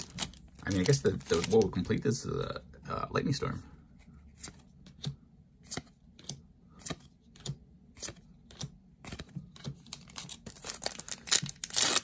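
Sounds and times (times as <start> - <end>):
trading cards flipping clicks: 4.4 - 9.8.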